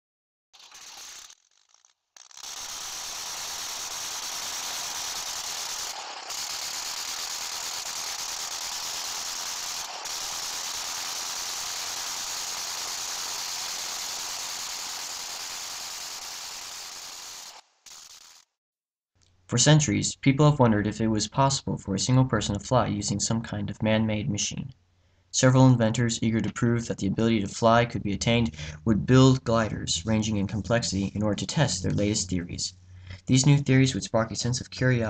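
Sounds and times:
rattling hiss: 0:00.6 - 0:18.5.

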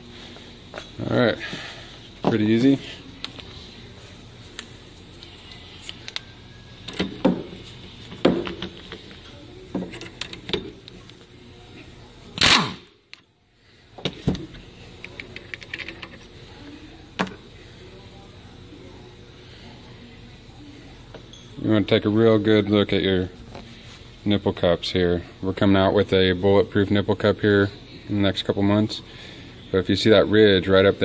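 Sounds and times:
metal tools clinking: 0:15.1 - 0:16.4.

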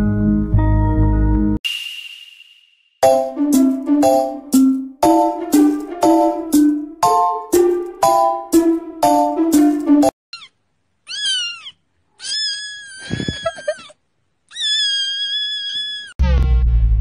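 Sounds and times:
chiming tune: 0:01.7 - 0:10.0
kitten meowing: 0:10.3 - 0:13.9, 0:14.5 - 0:16.2.

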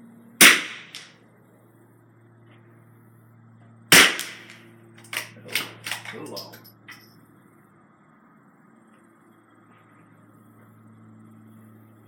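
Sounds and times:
rifle shots: 0:00.4 - 0:01.1, 0:03.9 - 0:06.1.

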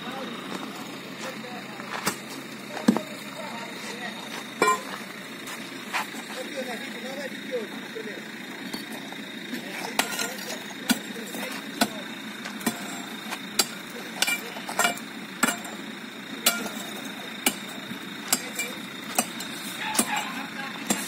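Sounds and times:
steel bar striking brick wall: 0:16.4 - 0:16.8.

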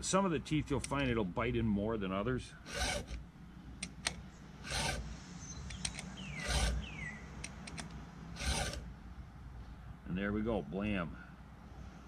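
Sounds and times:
file rasping on chainsaw chain: 0:02.6 - 0:03.2, 0:04.6 - 0:05.1, 0:05.7 - 0:06.9, 0:08.4 - 0:08.8.

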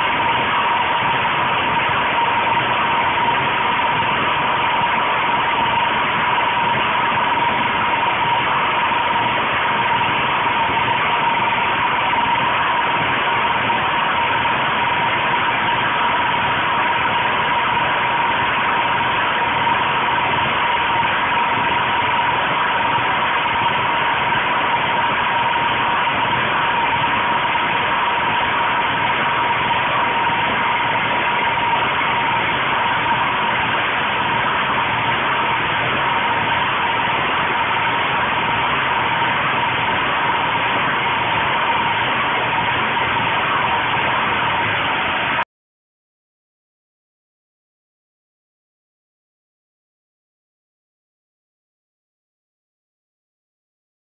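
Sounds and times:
generator engine running: 0:00.0 - 0:45.4.

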